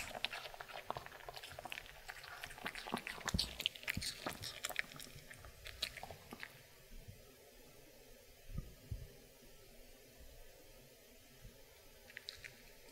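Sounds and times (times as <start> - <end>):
dog crunching apple: 0.0 - 6.6.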